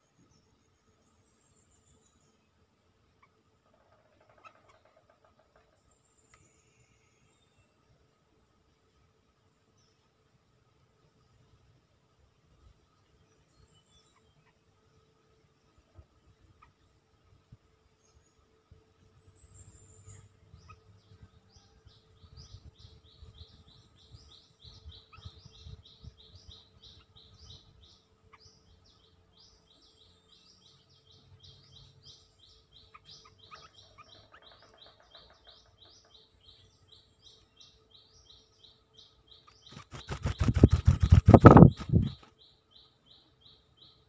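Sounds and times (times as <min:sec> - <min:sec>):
birds chirping: 0:03.2 - 0:08.0, 0:15.4 - 0:44.0
bird wings fluttering: 0:39.6 - 0:42.3.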